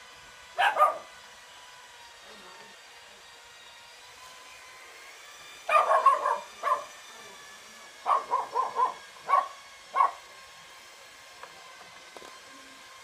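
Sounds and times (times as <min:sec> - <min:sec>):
dog barking: 0:00.6 - 0:01.1, 0:05.7 - 0:06.9, 0:08.0 - 0:10.2.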